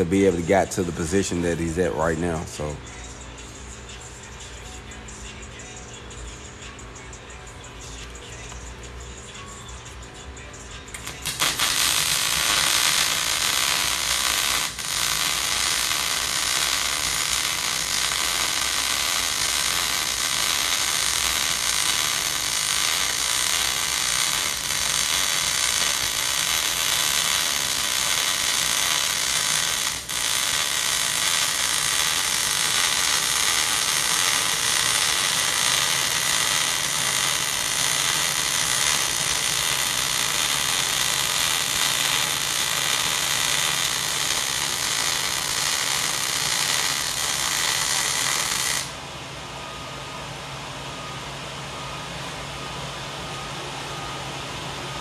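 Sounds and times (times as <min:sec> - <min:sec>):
welding arc burning: 0:10.9 - 0:49.0.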